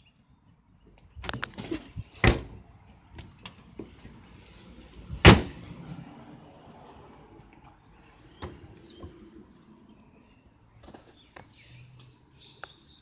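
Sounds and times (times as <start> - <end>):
liftgate glass slamming shut: 1.7 - 2.6, 5.2 - 5.6.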